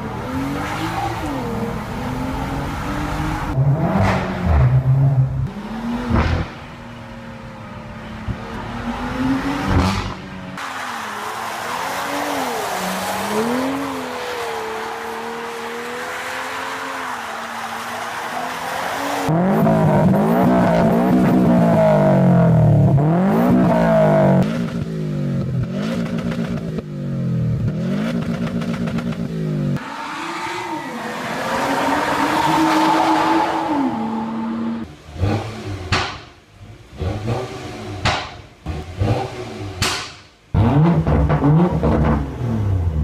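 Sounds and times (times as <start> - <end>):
car engine revving: 0.0 - 43.0
exhaust pops and crackles: 28.1 - 29.3.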